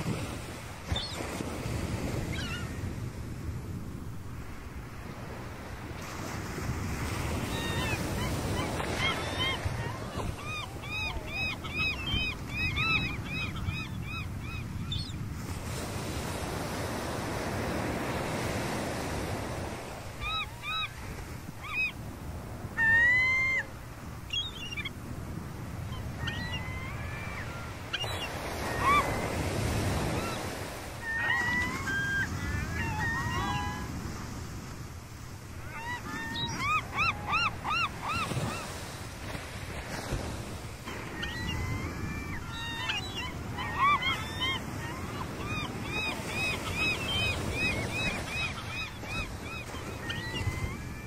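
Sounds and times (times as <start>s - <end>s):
gulls calling: 7.1s - 22.1s, 22.7s - 25.0s, 25.7s - 34.3s, 35.6s - 39.6s, 40.3s - 51.0s.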